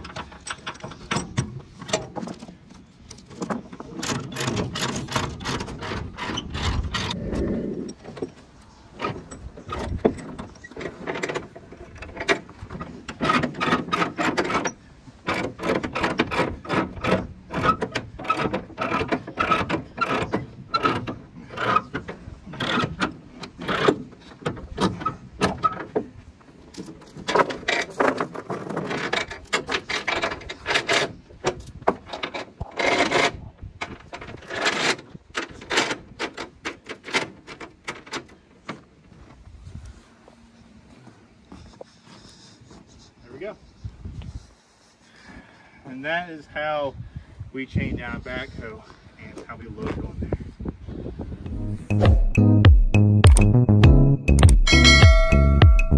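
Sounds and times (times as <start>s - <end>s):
steel chain links jangling: 26.7s - 38.4s.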